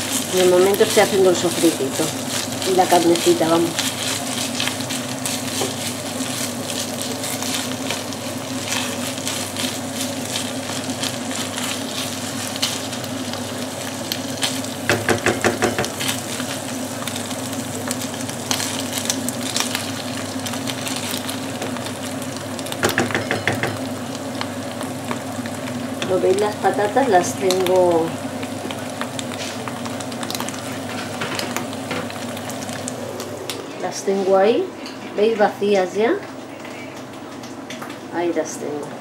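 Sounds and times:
meat sizzling in a frying pan: 0.0s - 33.4s
wooden spoon scraping a pan: 2.2s - 10.4s.

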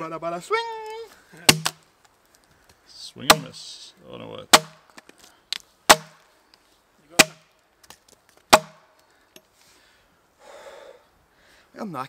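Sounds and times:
axe chopping into log: 1.5s - 1.8s, 3.3s - 3.6s, 4.5s - 4.8s, 5.9s - 6.2s, 7.1s - 7.5s, 8.5s - 8.9s.

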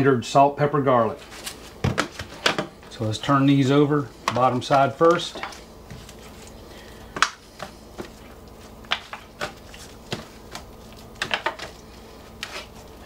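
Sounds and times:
foil pan crinkling: 1.2s - 13.0s.

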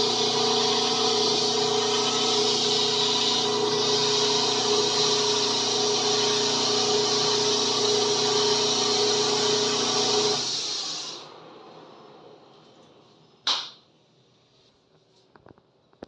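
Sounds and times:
lathe motor hum: 0.0s - 11.4s.

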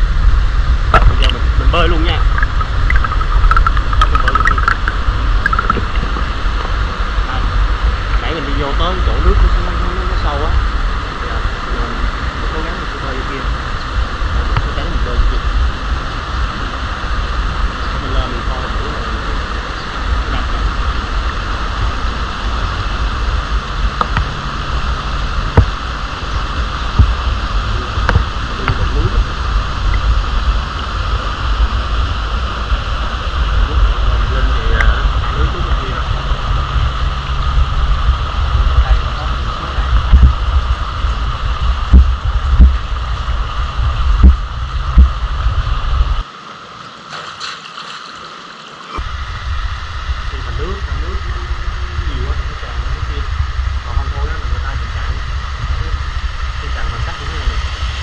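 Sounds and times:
wind rumble on microphone: 0.0s - 46.3s, 48.9s - 58.0s
stream water rushing: 0.9s - 34.2s, 46.2s - 50.2s.

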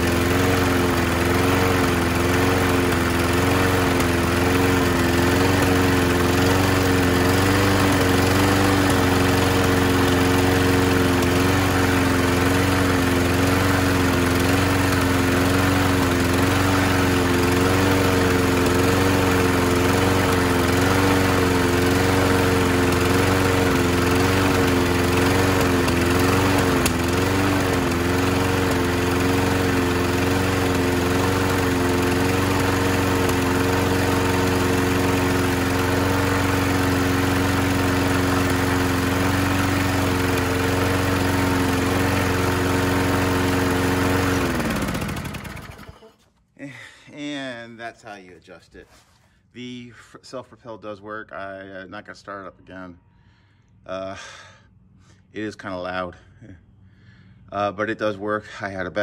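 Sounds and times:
mower engine running fast: 0.0s - 46.2s.

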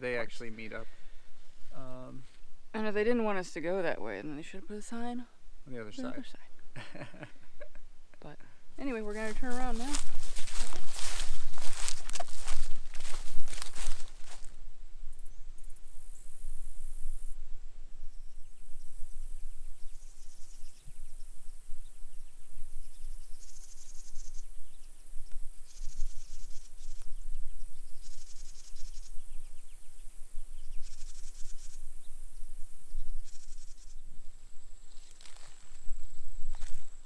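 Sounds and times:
insects droning: 0.0s - 37.0s
pulsing insect chirring: 15.1s - 17.4s, 18.1s - 37.0s.

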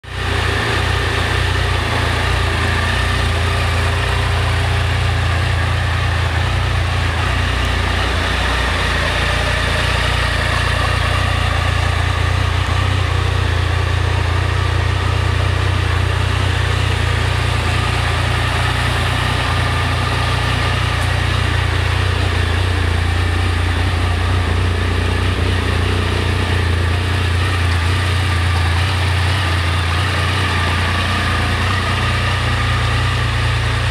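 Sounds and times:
motorcycle engine idling: 0.0s - 33.9s.

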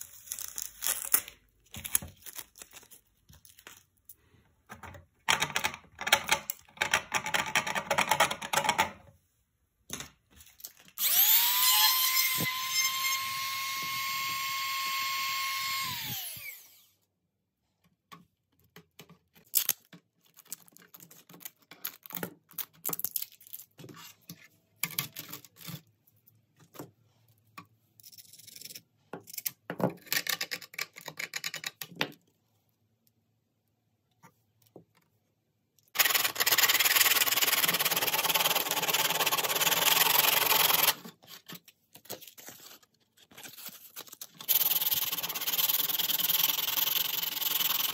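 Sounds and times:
power tool whining: 11.0s - 16.9s
clicks taps and scraping: 17.8s - 25.9s.

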